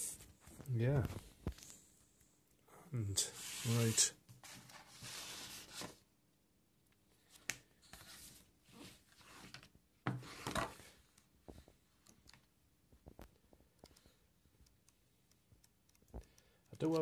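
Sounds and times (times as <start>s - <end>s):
paper booklet pages flipping: 3.4s - 6.0s, 7.2s - 10.8s.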